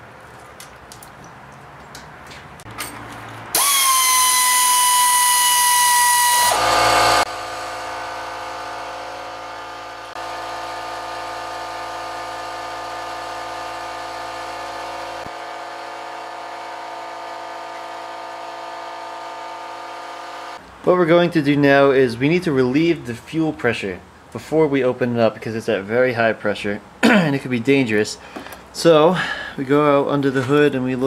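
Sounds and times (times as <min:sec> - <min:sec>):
cordless power tool whine: 0:03.5 - 0:20.6.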